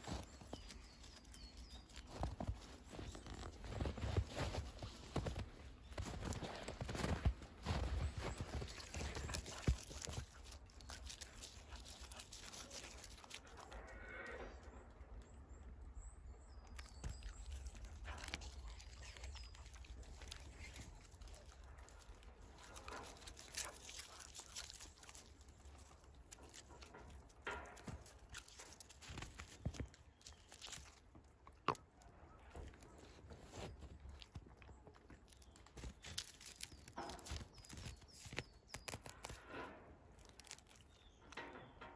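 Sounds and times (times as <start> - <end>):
dog chewing dry leaves: 0.0 - 5.0, 8.0 - 13.8, 16.8 - 39.4, 40.2 - 41.2
paws crunching in snow: 0.0 - 13.8, 16.8 - 31.8, 32.4 - 39.5
leaves rustling: 35.3 - 39.5, 40.2 - 40.8.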